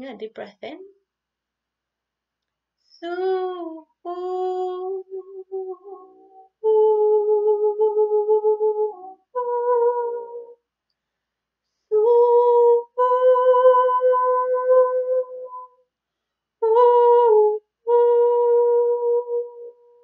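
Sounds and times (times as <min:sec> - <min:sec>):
woman singing long wordless notes: 0:03.0 - 0:10.6, 0:11.9 - 0:15.7, 0:16.6 - 0:19.8
breath: 0:10.9 - 0:11.8, 0:16.1 - 0:16.5.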